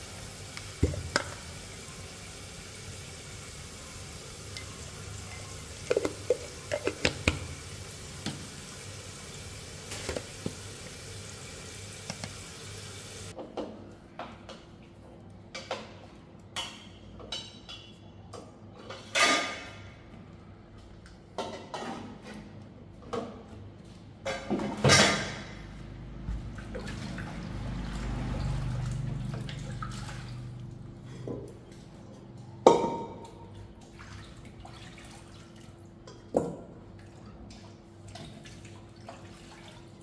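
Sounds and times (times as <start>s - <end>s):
food sizzling in a pan: 0.0s - 13.3s
kitchenware clatter: 4.5s - 7.6s, 18.7s - 20.0s, 21.4s - 22.5s, 32.6s - 33.4s.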